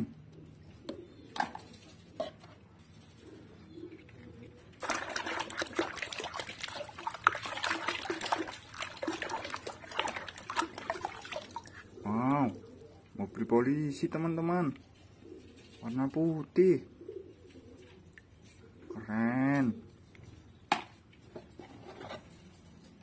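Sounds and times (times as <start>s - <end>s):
hand splashing soapy water: 4.8s - 12.6s
water drips: 4.8s - 13.2s.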